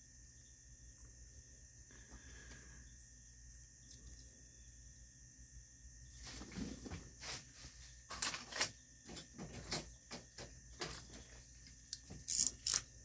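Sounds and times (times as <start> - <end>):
metal parts clicking and tapping: 8.2 - 12.9.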